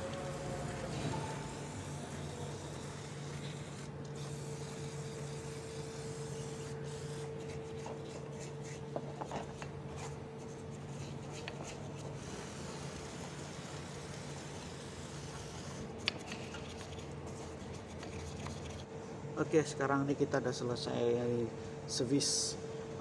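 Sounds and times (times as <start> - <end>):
steady low hum: 0.0 - 23.0
aerosol spray hissing: 0.1 - 7.5.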